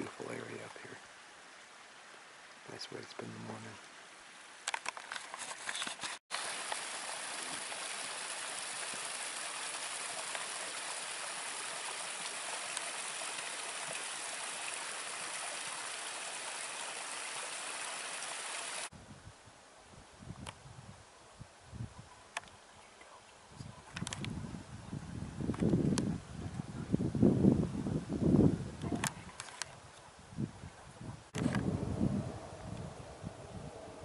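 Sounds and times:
creek running over rocks: 0.0s - 18.9s
quiet outdoor sound: 0.0s - 34.0s.

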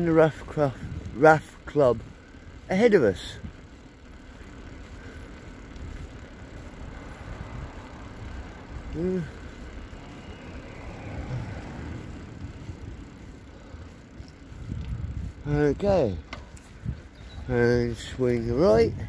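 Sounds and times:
tyres rolling on tarmac: 0.0s - 19.0s
wind on microphone: 14.5s - 17.5s, 18.7s - 19.0s.

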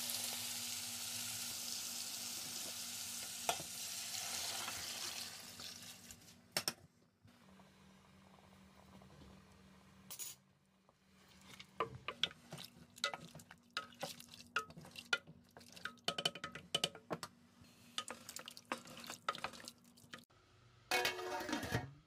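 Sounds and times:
spoon clinking against steel pot: 14.6s - 17.0s.

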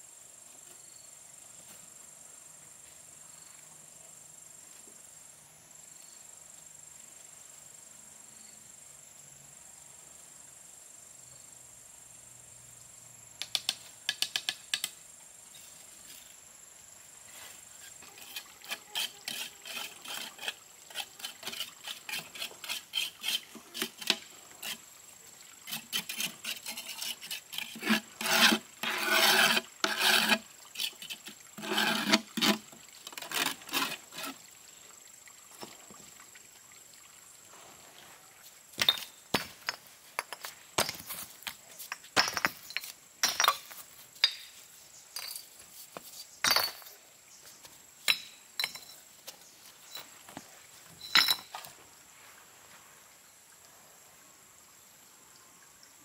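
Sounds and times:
trowel scraping mortar: 17.8s - 24.8s, 25.7s - 34.4s
bricks knocking and clinking: 38.8s - 44.5s, 46.4s - 46.9s, 48.1s - 49.0s, 51.0s - 51.5s.

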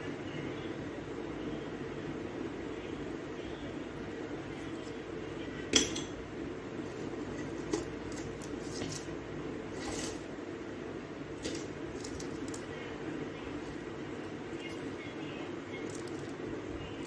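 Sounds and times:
small hard objects clinking: 15.8s - 16.4s.

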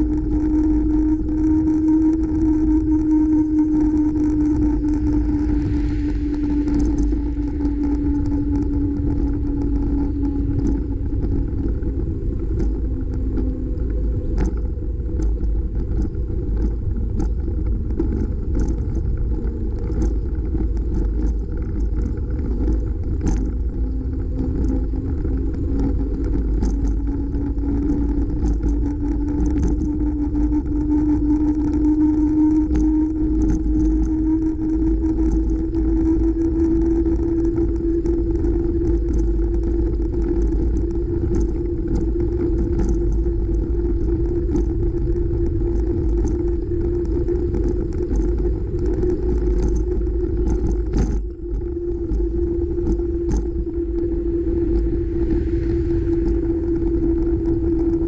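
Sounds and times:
bicycle hum: 0.0s - 58.0s
sharp ticks from bumps: 0.0s - 58.0s
wind rumble on microphone: 0.0s - 58.0s.

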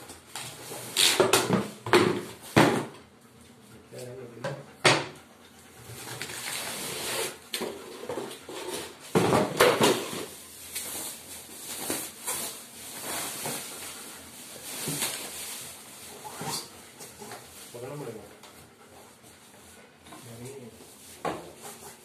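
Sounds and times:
plastic packaging rustling: 10.0s - 16.8s.

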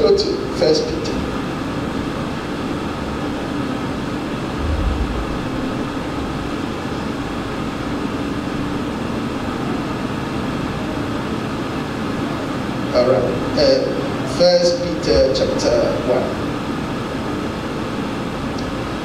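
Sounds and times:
faint low hum: 4.4s - 7.7s
brief low thump: 4.6s - 6.8s.

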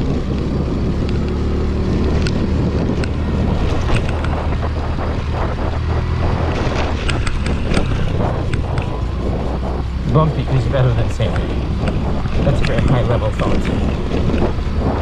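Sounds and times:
scooter engine running: 0.0s - 15.0s
wind rush on microphone: 0.0s - 15.0s
clicks and rattles: 3.0s - 4.7s, 6.5s - 9.1s, 11.0s - 15.0s.

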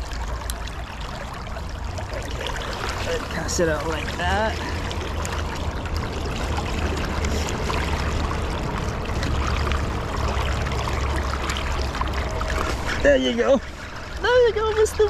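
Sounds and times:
low rumble: 0.0s - 14.6s.

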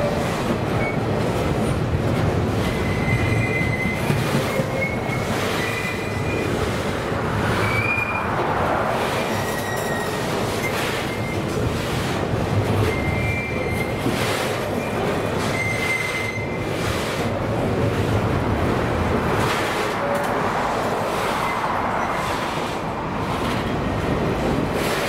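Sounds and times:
freight train wheels rumbling: 0.0s - 25.0s
wheels squealing: 2.6s - 6.9s, 7.5s - 8.4s, 9.2s - 11.5s, 12.8s - 16.8s.

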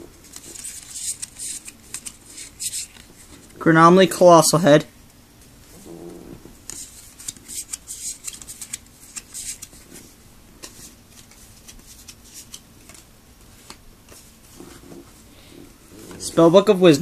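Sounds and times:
cards clicking and rustling: 0.2s - 3.6s, 6.6s - 10.0s, 10.6s - 14.7s.

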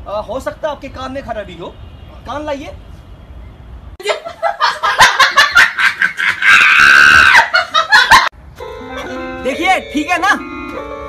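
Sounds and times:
high-pitched laughter: 4.0s - 8.3s.

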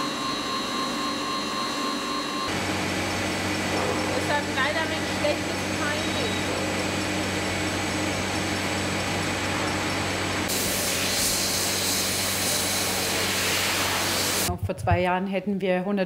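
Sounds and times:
bottling machine hum: 0.0s - 14.5s
machine hiss: 10.5s - 14.5s.

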